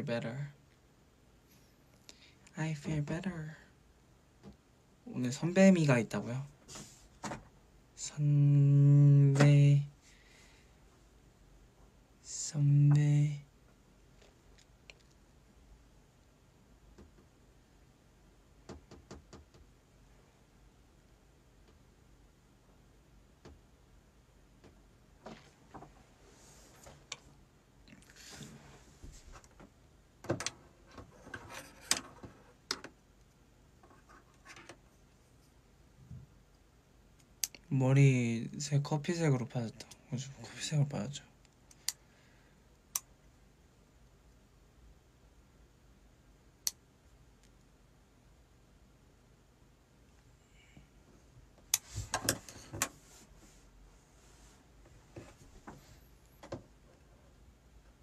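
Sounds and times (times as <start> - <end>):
sharp clicks and knocks: 29.4 - 33.0.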